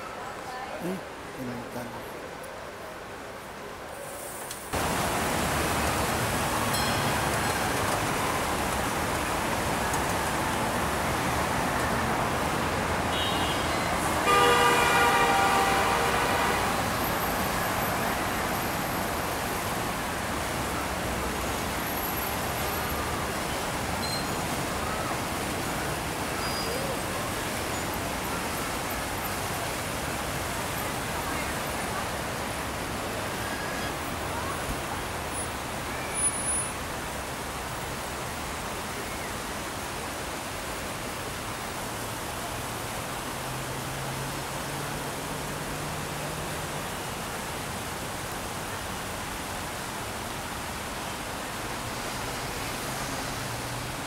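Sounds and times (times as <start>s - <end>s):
faint voices of passers-by: 0.0s - 4.5s, 15.3s - 36.2s
road traffic hiss: 0.0s - 54.0s.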